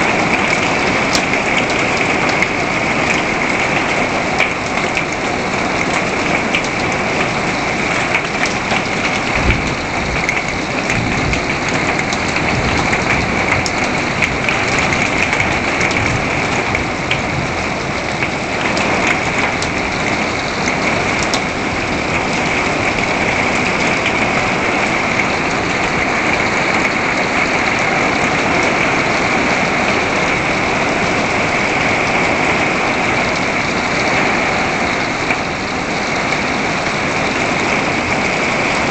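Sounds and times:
heavy rain on wooden deck: 0:00.0 - 0:38.9
rain on plastic buckets: 0:00.0 - 0:38.9
low rumble of thunder: 0:08.7 - 0:25.2.

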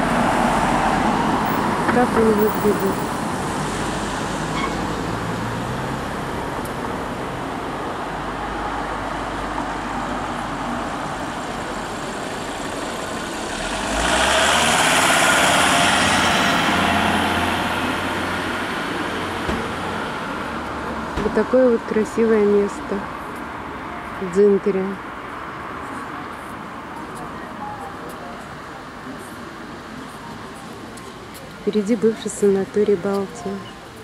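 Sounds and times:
street traffic hum: 0:00.0 - 0:34.0
car passing close by: 0:11.9 - 0:21.2.

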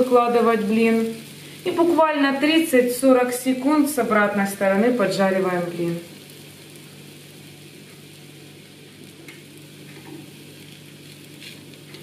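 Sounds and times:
crepe sizzling in a pan: 0:00.0 - 0:12.0.

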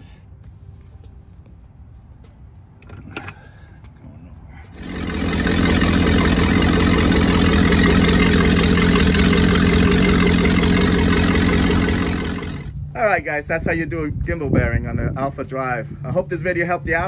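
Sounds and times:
boat engine running: 0:04.5 - 0:13.2
water splashing from exhaust: 0:04.8 - 0:12.8.

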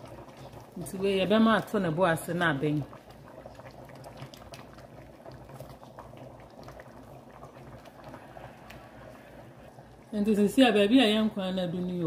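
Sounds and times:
soup bubbling in pots: 0:00.0 - 0:12.0.

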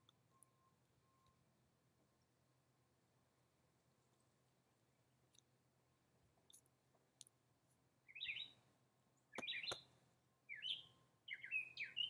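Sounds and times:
small songbird chirping: 0:08.0 - 0:08.6, 0:09.2 - 0:12.0.

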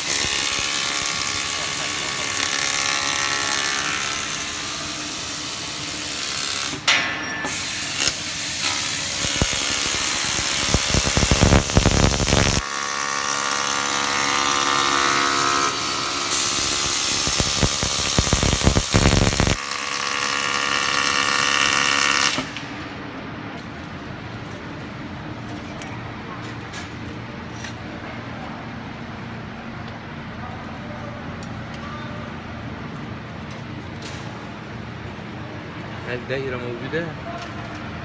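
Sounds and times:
laser cutter hissing: 0:07.5 - 0:12.6, 0:16.3 - 0:19.6
machine hum: 0:07.8 - 0:21.0.

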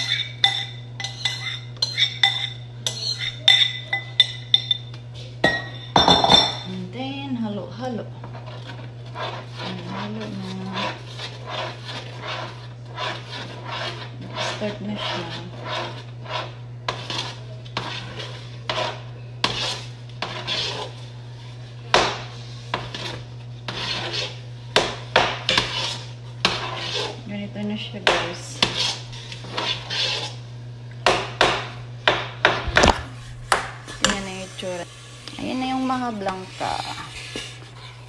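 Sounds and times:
metal spoon scraping a pot: 0:00.0 - 0:06.7, 0:08.2 - 0:21.5, 0:22.3 - 0:24.5, 0:25.3 - 0:27.3, 0:28.0 - 0:30.5
steady low hum: 0:00.0 - 0:38.0.

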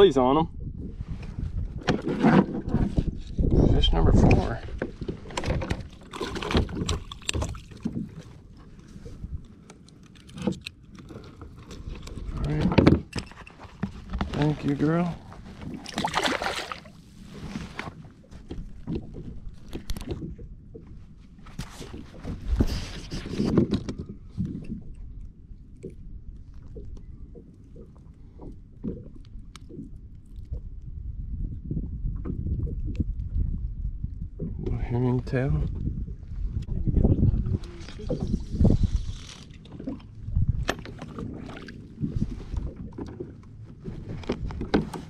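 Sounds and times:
wind rumbling on microphone: 0:00.0 - 0:09.6, 0:10.3 - 0:45.0
waves slapping plastic hull: 0:01.0 - 0:25.0, 0:35.8 - 0:45.0
knocks and clicks on kayak: 0:44.0 - 0:45.0.

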